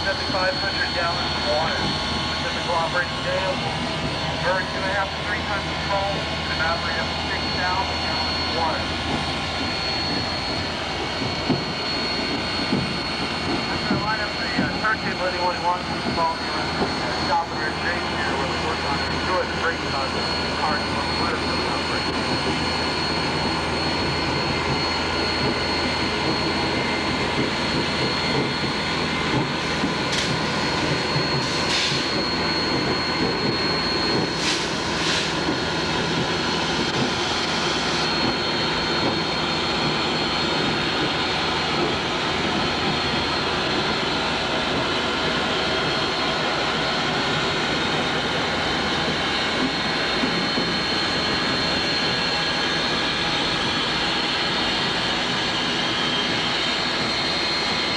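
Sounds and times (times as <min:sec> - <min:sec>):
steam locomotive roar and hiss: 0:00.0 - 0:57.9
sharp steam hisses: 0:31.4 - 0:32.1, 0:34.4 - 0:35.4.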